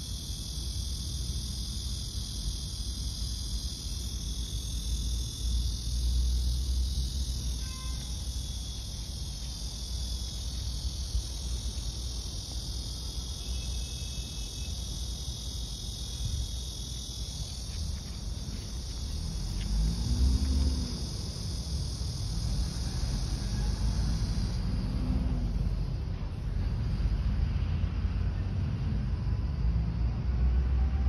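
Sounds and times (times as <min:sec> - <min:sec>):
insects chirring: 0:00.0 - 0:30.0.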